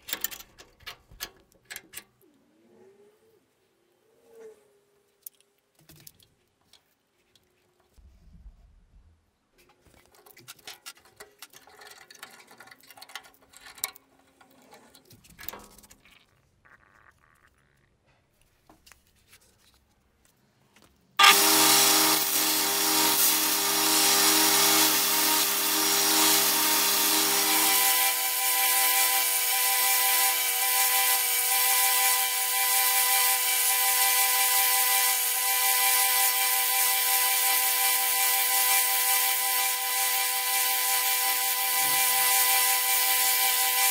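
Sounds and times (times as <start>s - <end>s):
belt grinder grinding wood: 21.2s - 43.9s.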